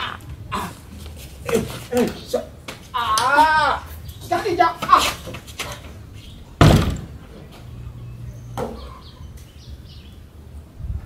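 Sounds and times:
wooden door slamming shut: 6.6 - 7.2.

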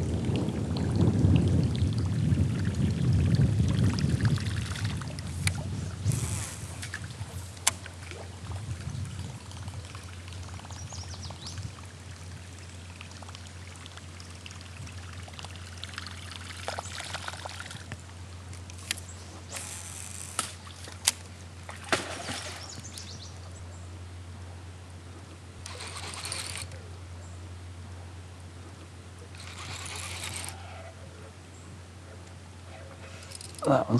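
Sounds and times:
steady low hum: 0.0 - 33.9
river water splashing: 3.8 - 24.2, 25.4 - 26.8, 29.0 - 31.0.

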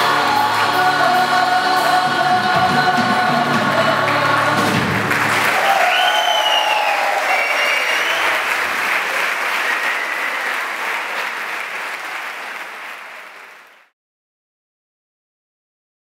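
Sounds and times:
audience cheering: 0.0 - 1.0, 5.0 - 13.9
audience applauding: 0.0 - 1.2, 4.0 - 13.9.

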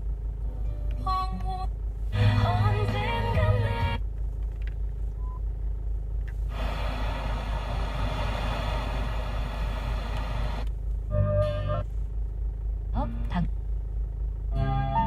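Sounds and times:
low cabin hum: 0.0 - 15.0
radio static hissing: 6.5 - 10.7.

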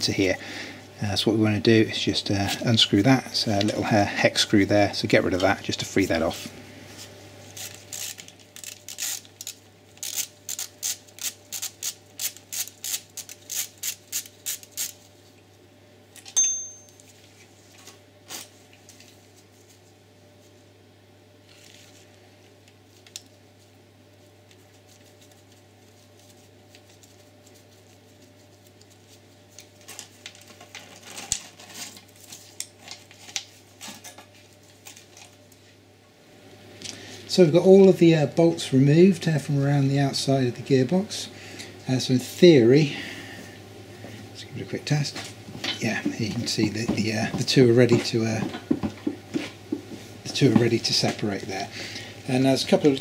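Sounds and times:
metallic tool clinks: 16.4 - 17.0.

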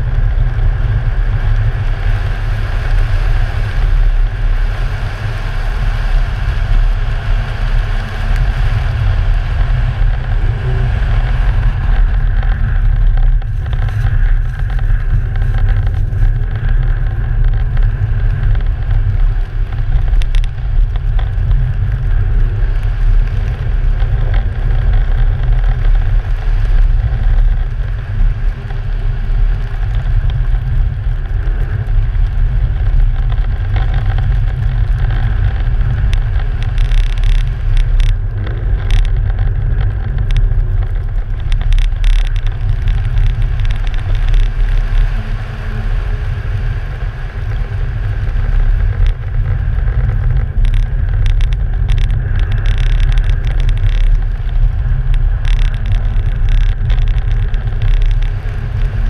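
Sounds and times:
car engine: 0.0 - 27.0
wind rumble on microphone: 0.0 - 59.0.

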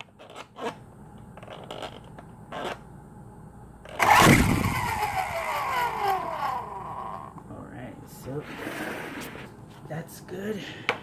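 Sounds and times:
toy helicopter rotor motors whining: 4.0 - 7.3.

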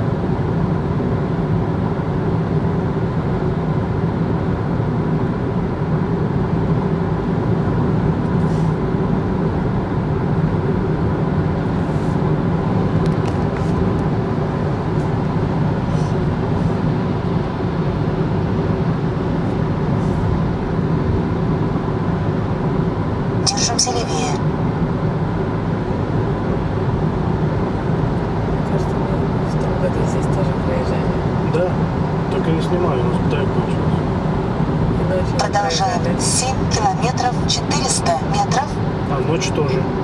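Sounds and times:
car road and engine rumble: 0.0 - 40.0.

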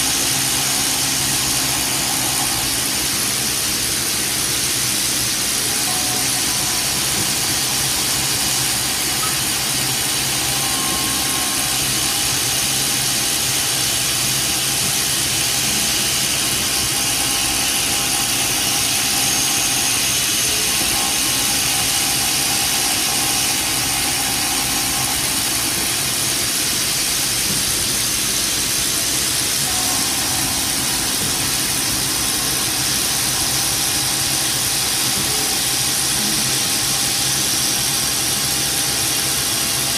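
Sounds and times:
milling machine hiss: 0.0 - 39.9.

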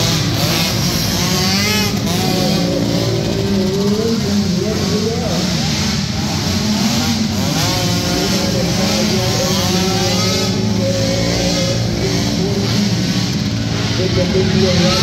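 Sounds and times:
small quad engines racing: 0.0 - 15.0.

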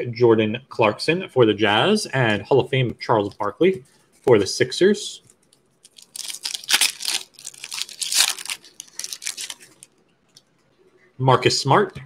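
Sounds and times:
foil wrapper tearing and crinkling: 5.8 - 9.9.

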